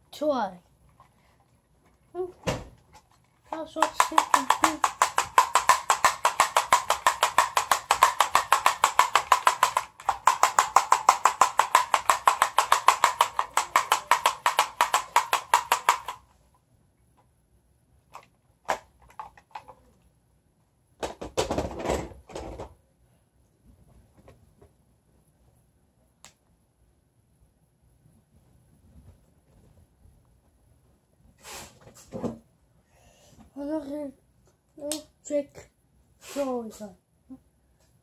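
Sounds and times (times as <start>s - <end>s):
scattered knocks: 3.7s - 16.2s
fast even clicking: 3.8s - 16.2s.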